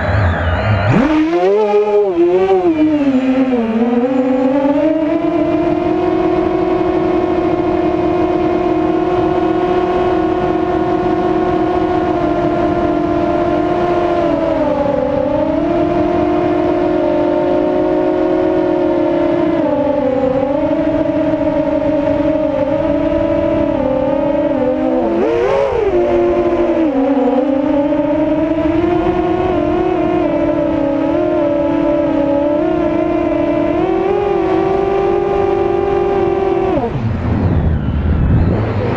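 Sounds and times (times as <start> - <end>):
quadcopter motors whining: 0.0 - 7.9, 19.3 - 38.9.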